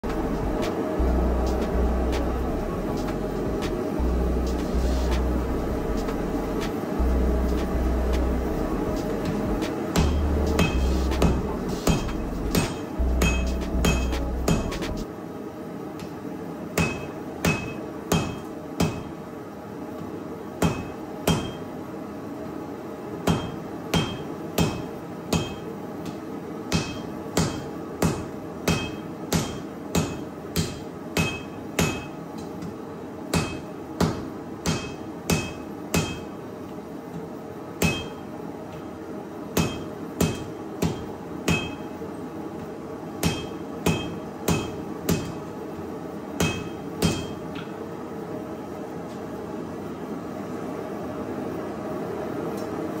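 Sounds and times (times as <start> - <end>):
hammer striking steel on anvil: 10.0 - 15.0, 16.8 - 19.2, 20.6 - 21.7, 23.2 - 32.2, 33.3 - 36.4, 37.8 - 38.3, 39.6 - 42.0, 43.2 - 45.4, 46.4 - 47.8.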